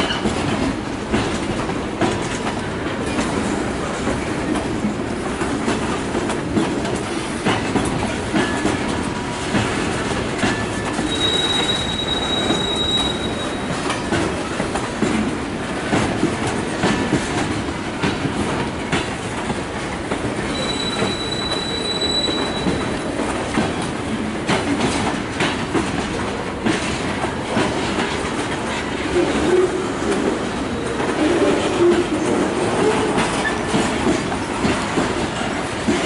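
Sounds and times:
freight train rumbling by: 0.0s - 36.0s
wheels clacking over rail joints: 0.0s - 36.0s
high wheel squeal: 11.0s - 13.8s, 20.5s - 23.0s.

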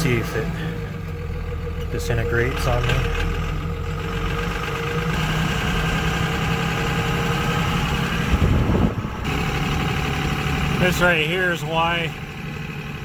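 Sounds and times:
truck engine running: 0.0s - 13.0s
low thumps: 7.3s - 10.4s.

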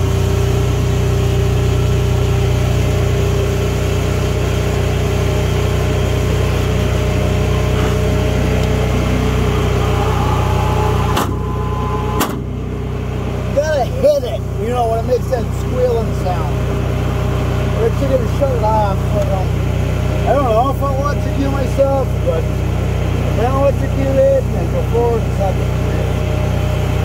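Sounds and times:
welder engine idling: 0.0s - 27.0s.

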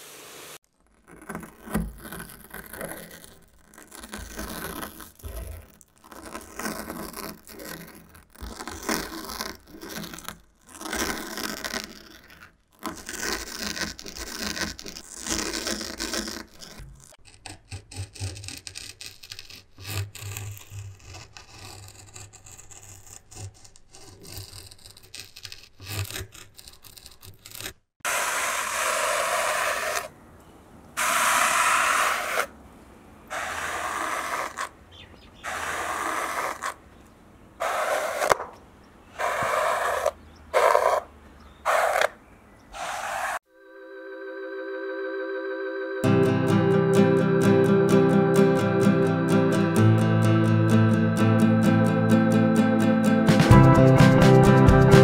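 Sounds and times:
squeegee scraping snow: 0.0s - 17.2s, 18.8s - 30.2s, 31.0s - 32.5s, 33.3s - 36.8s, 37.6s - 43.5s
knife sawing through brush bristles: 1.3s - 30.1s, 31.0s - 32.5s, 33.3s - 34.8s, 35.4s - 36.8s, 37.6s - 38.5s, 39.1s - 41.1s, 41.7s - 42.2s, 42.8s - 43.4s.

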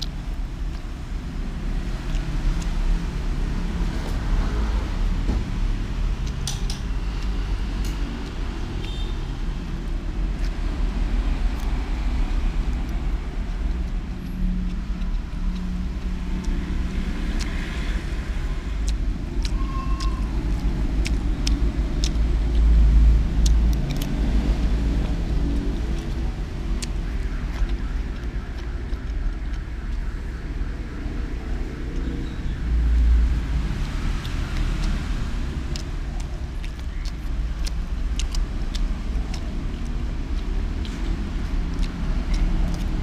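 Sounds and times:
steady low rumble: 0.0s - 43.0s.

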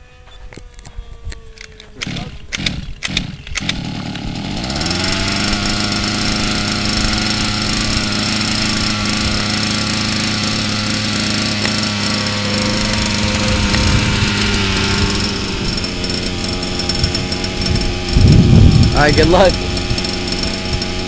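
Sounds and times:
two-stroke engine starting and idling: 2.0s - 21.0s.

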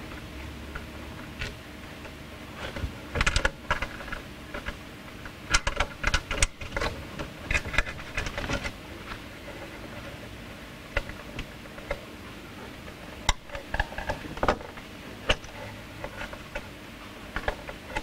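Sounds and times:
cables clicking and rattling: 0.0s - 18.0s.

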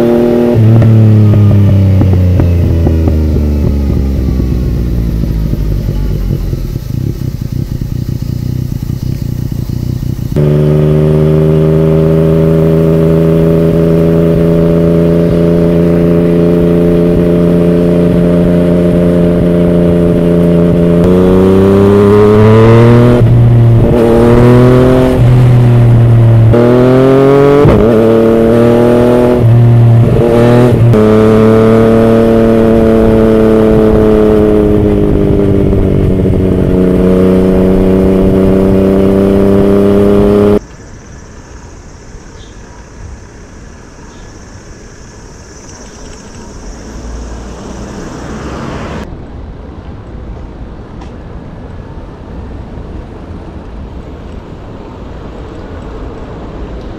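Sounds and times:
motorcycle engine revving: 0.0s - 49.1s.

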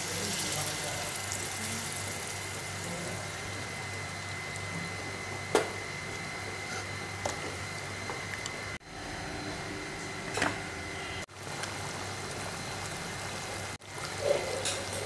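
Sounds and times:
gas stove burner hissing: 0.0s - 7.6s.

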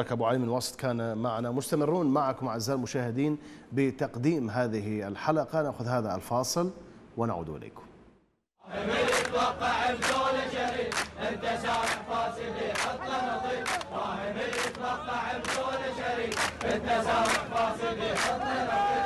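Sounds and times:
men chanting in unison: 8.6s - 19.0s
handclaps in time: 9.1s - 9.4s, 10.0s - 12.1s, 12.7s - 13.0s, 13.6s - 18.4s.

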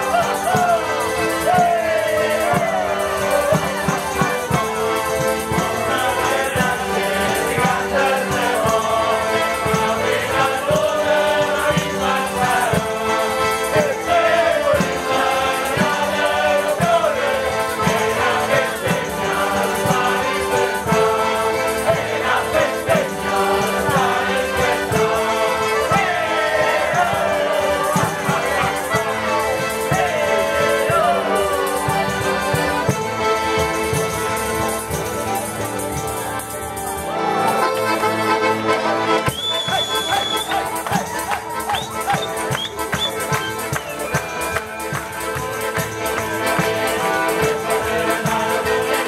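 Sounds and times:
men singing in chorus: 0.0s - 3.8s, 5.5s - 32.0s, 46.4s - 49.0s
accordions playing chords: 0.0s - 49.0s
tambourines beating rhythm: 0.0s - 49.0s.

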